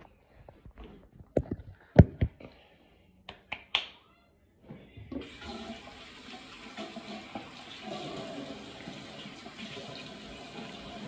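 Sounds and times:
tap water running into basin: 5.2s - 11.0s.

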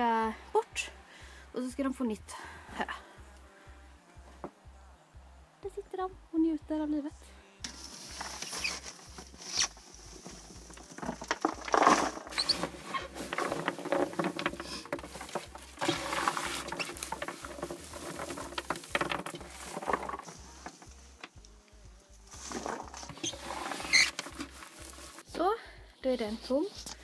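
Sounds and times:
dry hay rustling and crackling: 7.6s - 25.3s.

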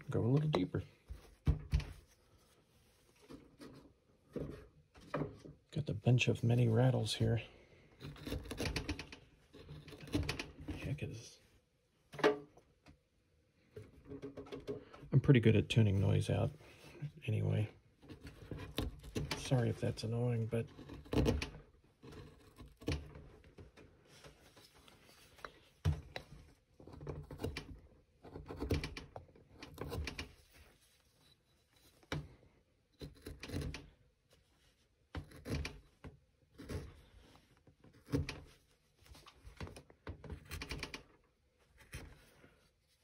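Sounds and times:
carving gouge cutting wood: 8.0s - 8.9s, 18.1s - 19.7s, 20.6s - 23.2s, 26.8s - 30.2s, 33.0s - 34.0s, 35.2s - 35.8s, 36.6s - 37.1s
carving bench clicks and rattles: 8.0s - 10.7s, 14.0s - 14.9s, 20.8s - 23.9s, 26.0s - 30.4s, 33.0s - 33.9s, 35.2s - 36.9s, 37.9s - 38.5s, 39.6s - 41.3s.

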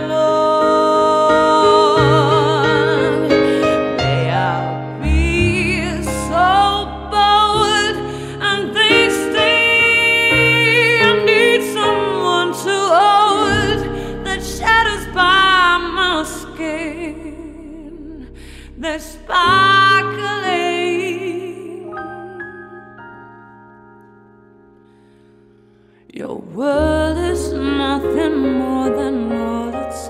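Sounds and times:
woman singing a pop ballad: 0.0s - 23.2s, 26.0s - 30.0s
digital piano: 0.0s - 30.0s.

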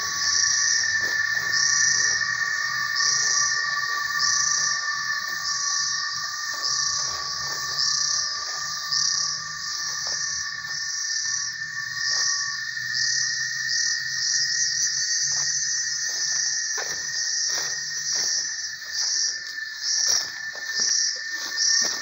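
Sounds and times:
footsteps in leaf litter: 0.0s - 10.8s, 15.2s - 22.0s
insects chorus: 0.0s - 22.0s.

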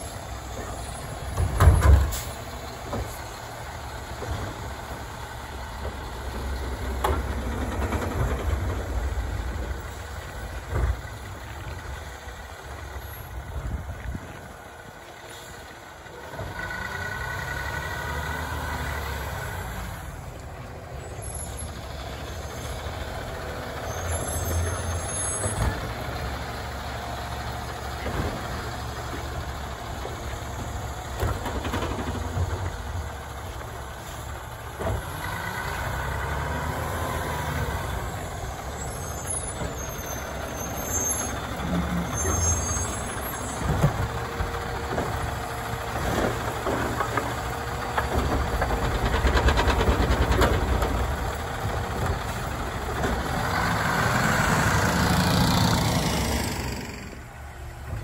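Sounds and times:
garbage truck running: 0.0s - 58.0s.

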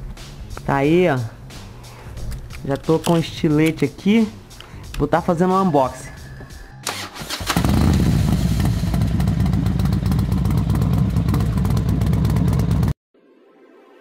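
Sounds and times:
motorcycle engine running: 7.4s - 13.0s.

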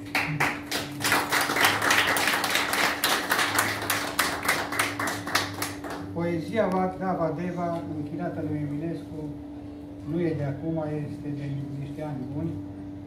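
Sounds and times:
small audience clapping: 0.0s - 6.2s.

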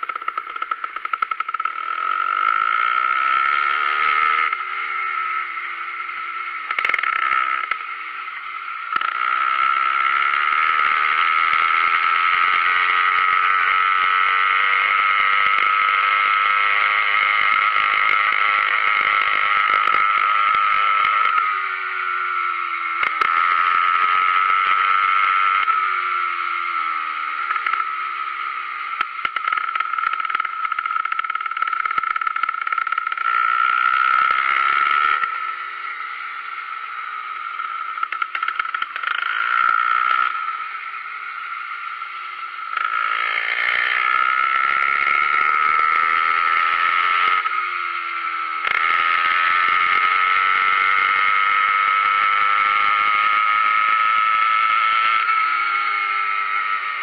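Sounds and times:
bike knocking and rattling: 0.0s - 2.9s, 29.0s - 35.0s, 37.7s - 40.3s
small gasoline engine running: 0.0s - 57.0s.

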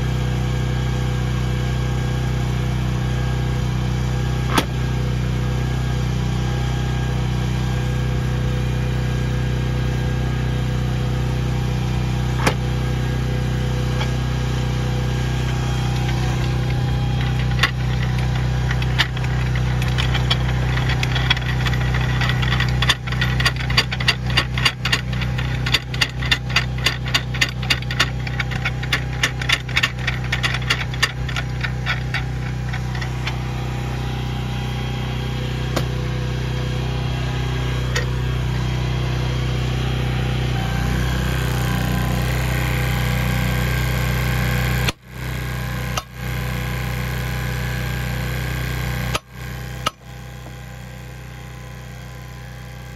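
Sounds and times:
engine idling: 0.0s - 52.9s
sharp metallic clicks: 15.5s - 33.4s.

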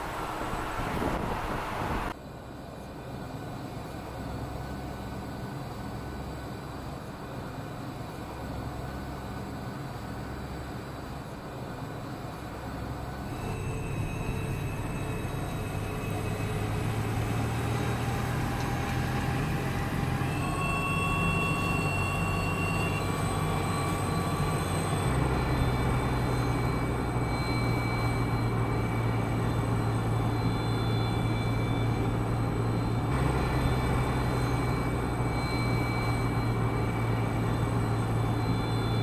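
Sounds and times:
electric truck whine: 12.8s - 39.0s.

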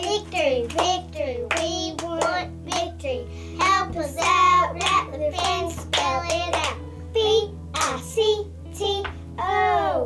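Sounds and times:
hands clapping: 0.0s - 3.0s, 4.2s - 6.8s, 7.8s - 8.1s, 9.0s - 9.2s.

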